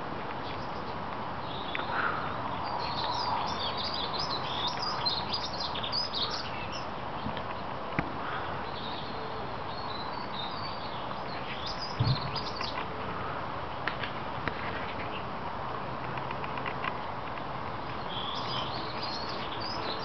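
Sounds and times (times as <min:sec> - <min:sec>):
small birds chirping: 0:00.2 - 0:13.9, 0:16.1 - 0:20.0
low thump: 0:12.0 - 0:12.4.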